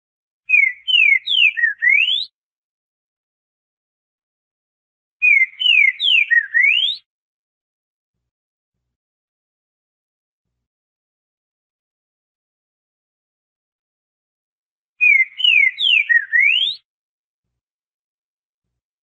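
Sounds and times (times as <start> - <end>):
bird singing whistled notes: 0.5 - 2.4, 5.2 - 7.1, 15.0 - 16.8.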